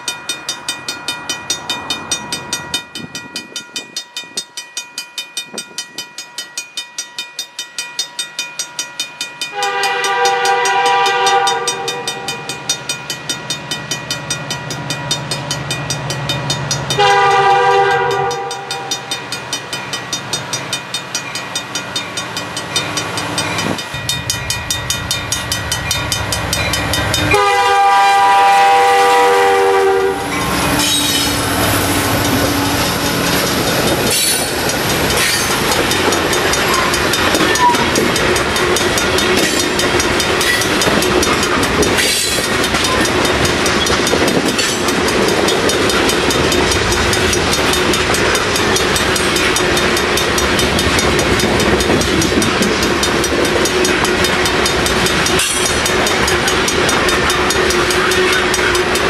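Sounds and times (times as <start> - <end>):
diesel locomotives rumbling: 0.0 - 59.0
locomotive horn chord: 9.5 - 12.4, 17.0 - 18.9, 27.2 - 31.3
freight cars clickety-clack: 9.5 - 59.0.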